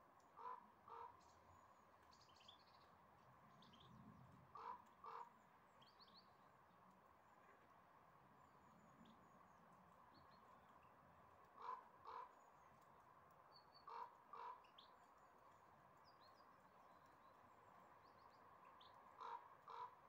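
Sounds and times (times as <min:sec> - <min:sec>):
faint crow cawing: 0:00.4 - 0:01.2, 0:04.5 - 0:05.3, 0:11.6 - 0:12.4, 0:13.9 - 0:14.7, 0:19.2 - 0:20.0.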